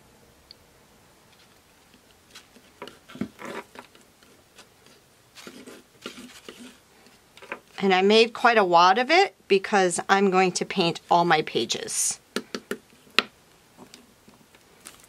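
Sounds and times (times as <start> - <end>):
palette knife scraping paint medium: 2.3 - 7.7.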